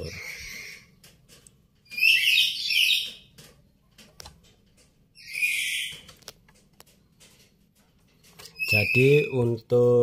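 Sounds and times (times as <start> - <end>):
bird calling high-pitched: 0.0 - 1.0, 1.8 - 3.3, 5.2 - 6.1, 8.5 - 9.6.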